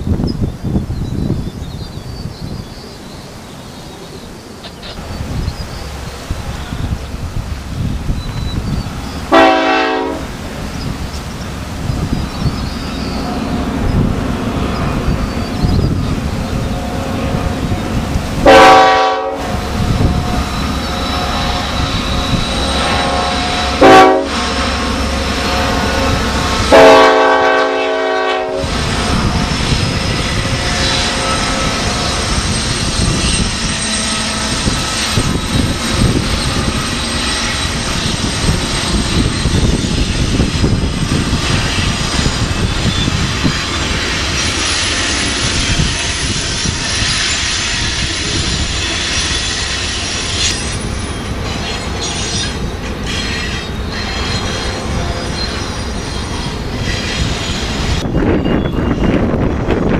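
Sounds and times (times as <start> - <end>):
train rumbling past on rails: 0.0 - 59.9
locomotive horn blasts: 9.3 - 10.4, 16.6 - 32.5, 33.5 - 35.3, 51.5 - 55.7.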